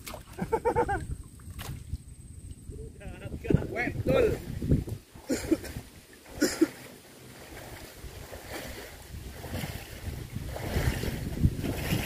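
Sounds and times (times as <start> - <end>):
small waves lapping: 0.0 - 2.1, 3.2 - 12.0
wind on microphone: 0.0 - 6.5, 7.4 - 12.0.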